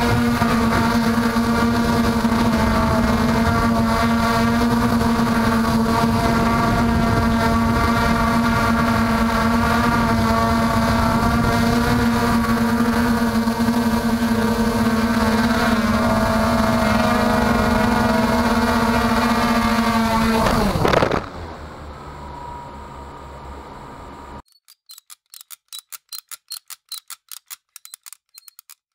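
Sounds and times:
quadcopter propellers buzzing: 0:00.0 - 0:23.0.

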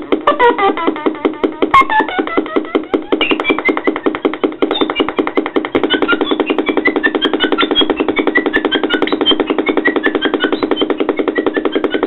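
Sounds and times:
synthesizer chirps: 0:00.0 - 0:12.0
synthesizer pulsing drone: 0:00.0 - 0:12.0.

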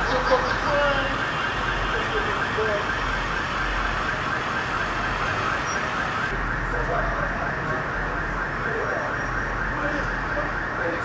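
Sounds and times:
siren on fast yelp: 0:00.0 - 0:11.0.

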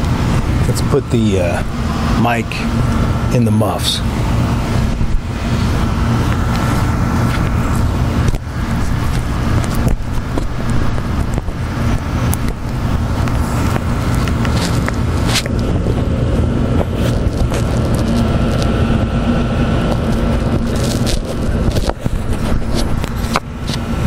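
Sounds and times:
dehumidifier and air conditioner hum: 0:00.0 - 0:24.0
microphone handling clicks and rubbing: 0:04.5 - 0:16.1, 0:16.7 - 0:19.0, 0:19.8 - 0:24.0.

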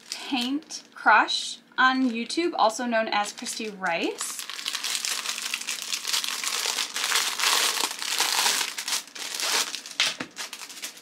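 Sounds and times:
plastic packaging crinkling: 0:00.0 - 0:01.0, 0:01.9 - 0:11.0.

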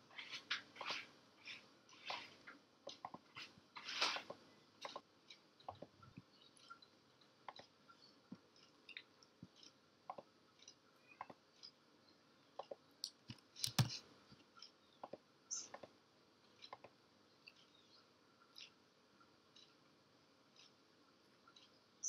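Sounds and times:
mouse clicks: 0:12.6 - 0:14.0
keyboard typing: 0:13.3 - 0:14.0.

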